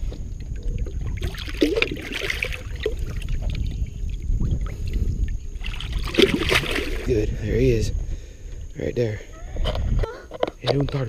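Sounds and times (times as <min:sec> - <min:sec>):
water splashing and trickling: 0:00.0 - 0:07.3
steady low rumble: 0:00.0 - 0:10.0.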